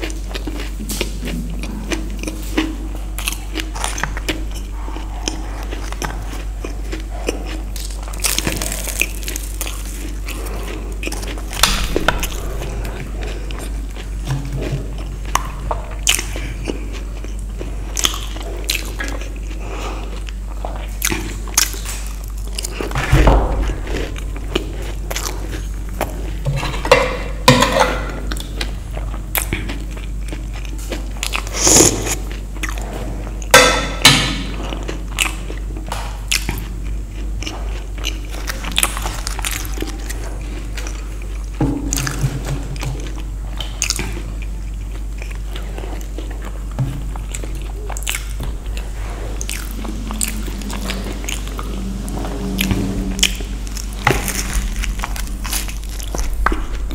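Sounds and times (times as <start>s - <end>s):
person crunching crisp snacks: 0.0s - 23.0s, 43.8s - 52.6s, 53.2s - 56.9s.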